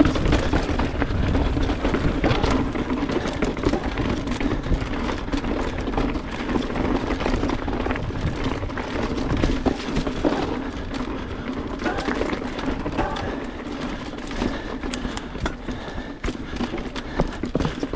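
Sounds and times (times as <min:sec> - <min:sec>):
bike knocks and rattles: 0:00.0 - 0:17.9
bike tyres rolling over rock: 0:00.0 - 0:17.9
wind rush on microphone: 0:07.0 - 0:10.9.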